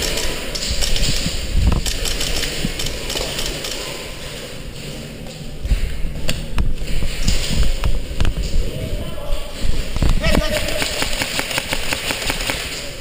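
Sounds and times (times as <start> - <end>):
sharp clicks and knocks: 0.0 - 3.8.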